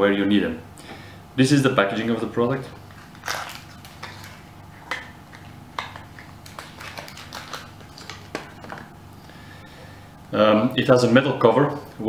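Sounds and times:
blister packaging being peeled open: 0:02.8 - 0:08.9.

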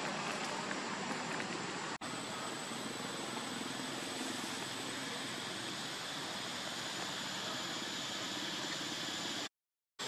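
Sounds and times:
outdoor background hiss: 0:00.0 - 0:09.5
high-pitched whine: 0:02.0 - 0:09.5.

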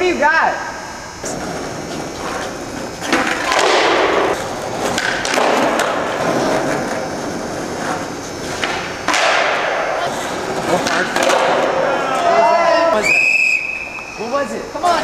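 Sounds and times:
skateboard wheels rolling on concrete: 0:01.1 - 0:14.0
skateboard popping and landing: 0:01.3 - 0:11.8.

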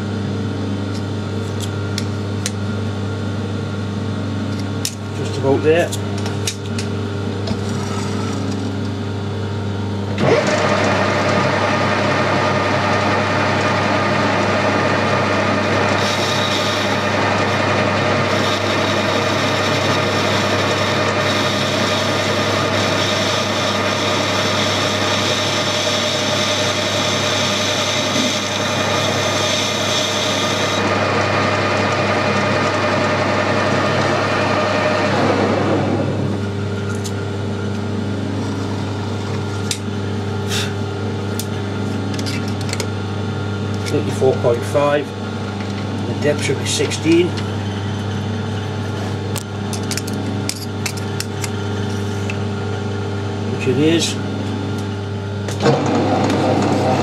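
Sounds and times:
metal lathe running: 0:10.0 - 0:40.4, 0:41.2 - 0:57.0
high-pitched metal cutting: 0:15.1 - 0:31.0.

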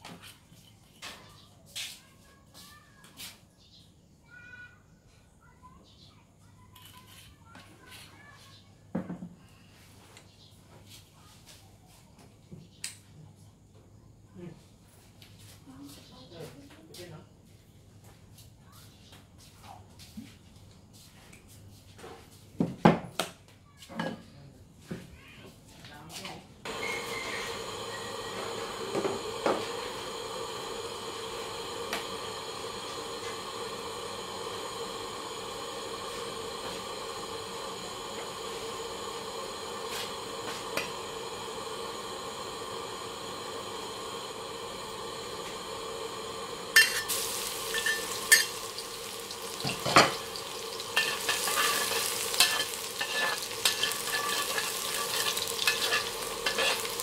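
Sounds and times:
gas burner hissing: 0:26.6 - 0:57.0
garlic sizzling in hot oil: 0:26.7 - 0:57.0
metal ladle scraping wok: 0:46.8 - 0:57.0.

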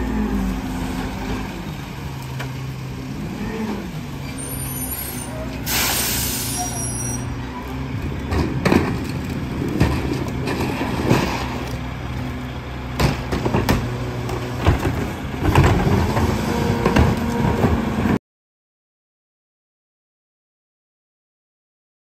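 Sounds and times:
trash carts knocking and clattering: 0:08.0 - 0:11.8, 0:12.8 - 0:18.2.

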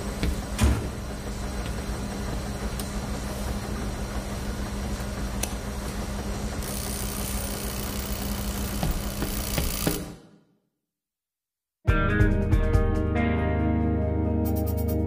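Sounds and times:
laundry machines humming: 0:00.0 - 0:10.4.

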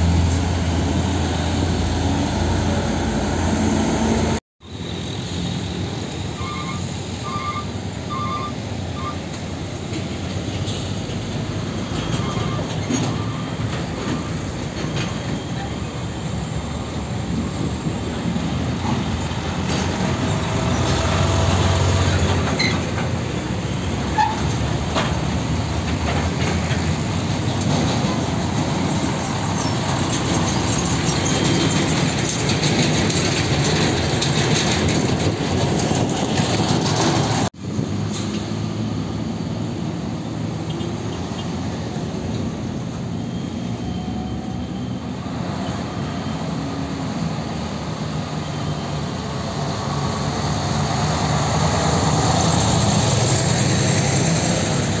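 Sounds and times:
diesel truck engines passing: 0:00.0 - 0:55.0
empty trailers clattering: 0:21.8 - 0:38.7.

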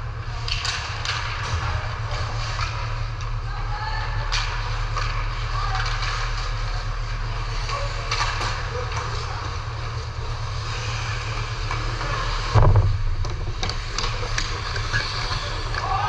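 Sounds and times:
low rumble and hiss: 0:00.0 - 0:16.0
heavy thud: 0:12.5 - 0:13.8.

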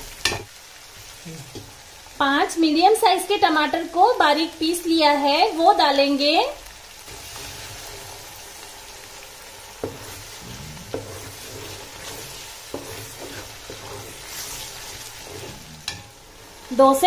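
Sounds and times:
tomatoes sizzling in hot oil: 0:00.0 - 0:17.0.

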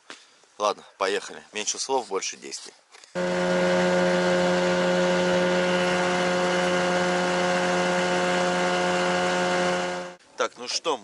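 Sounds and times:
outboard motor droning: 0:03.2 - 0:10.2.

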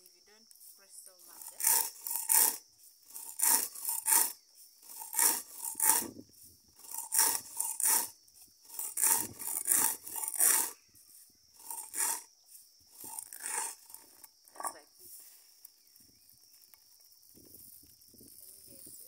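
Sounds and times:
stone grinding dry peas: 0:00.6 - 0:06.2, 0:06.8 - 0:10.8, 0:11.6 - 0:12.3, 0:12.9 - 0:14.8.

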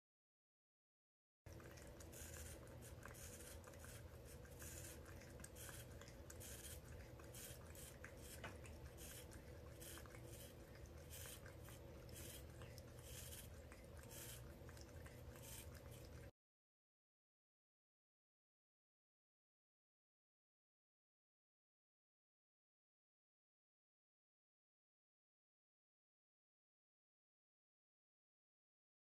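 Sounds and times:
low steady hum: 0:01.5 - 0:16.3
toothbrush bristles scratching: 0:01.5 - 0:16.3.

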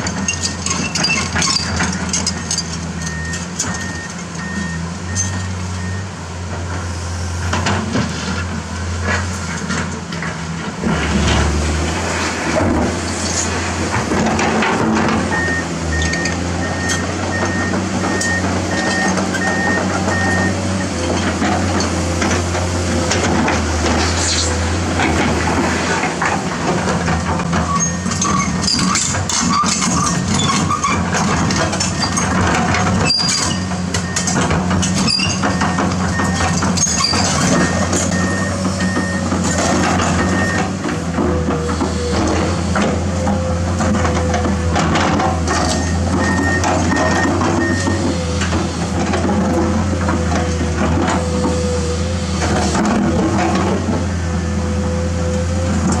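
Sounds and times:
excavator diesel engine: 0:00.0 - 0:56.0
bucket scraping dirt and rocks: 0:21.2 - 0:31.1
beeping alarm: 0:45.5 - 0:48.0.

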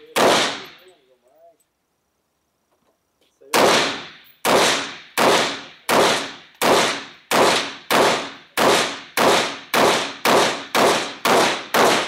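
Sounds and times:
pistol shots with echo: 0:00.0 - 0:00.8, 0:03.5 - 0:12.0.

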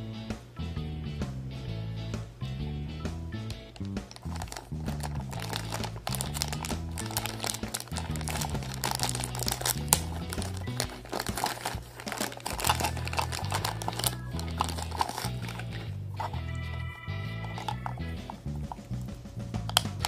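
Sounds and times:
background music: 0:00.0 - 0:20.0
plastic wrapping crinkling and tearing: 0:04.0 - 0:16.4.

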